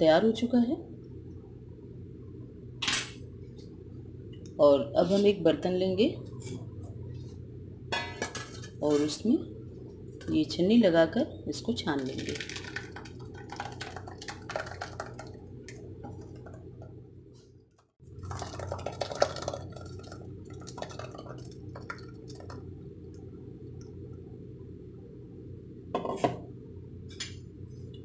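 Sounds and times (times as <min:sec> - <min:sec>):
pulp pouring and splashing: 0:12.0 - 0:16.6, 0:18.0 - 0:22.7.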